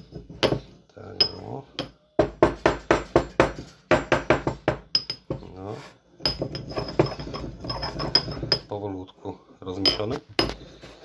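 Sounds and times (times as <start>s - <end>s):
stone pestle grinding in mortar: 6.3s - 8.7s.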